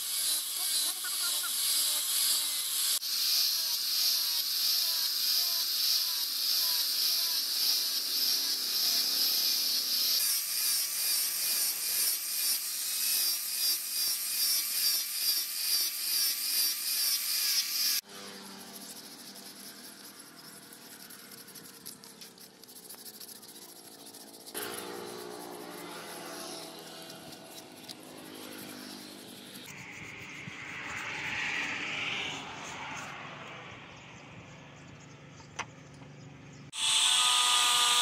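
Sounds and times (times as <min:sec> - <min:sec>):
angle grinder sanding wood: 0:00.0 - 0:31.3, 0:36.7 - 0:38.0
rubbing on wood: 0:18.6 - 0:30.0.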